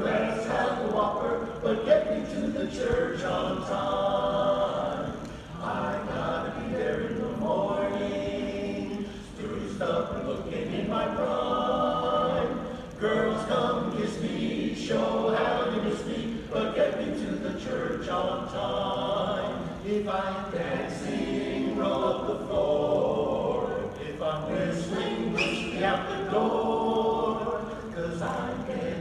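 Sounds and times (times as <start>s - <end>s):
men's a cappella chorus singing: 0.0s - 29.0s
singers breathing: 5.2s - 5.6s, 9.0s - 9.4s, 12.7s - 13.0s.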